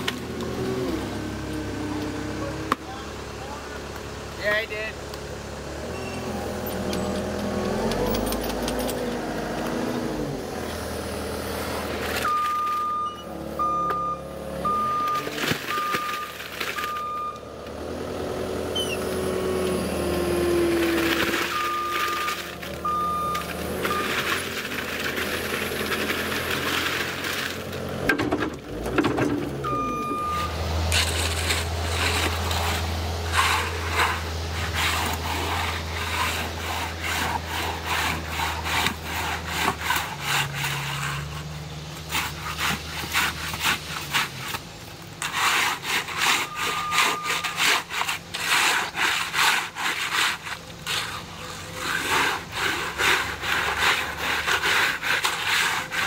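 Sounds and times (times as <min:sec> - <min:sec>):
diesel engine humming: 0:00.0 - 0:56.0
shovel scraping wet concrete: 0:06.7 - 0:17.4, 0:18.5 - 0:56.0
wet concrete sliding out: 0:18.8 - 0:56.0.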